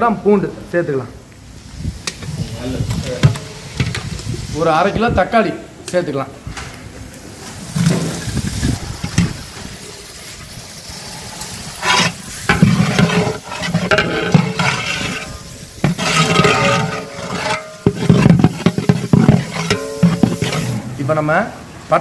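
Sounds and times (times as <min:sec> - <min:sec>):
background hiss: 0:00.0 - 0:22.0
metal ladle scraping a pot: 0:11.3 - 0:20.9.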